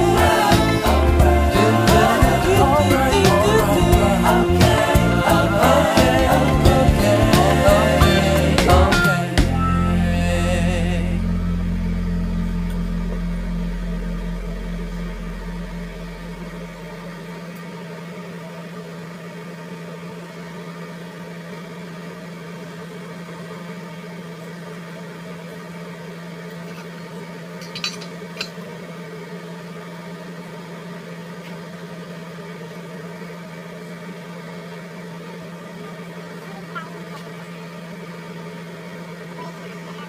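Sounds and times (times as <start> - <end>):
low machine hum: 0.0 - 40.0
short clinks: 27.6 - 28.6.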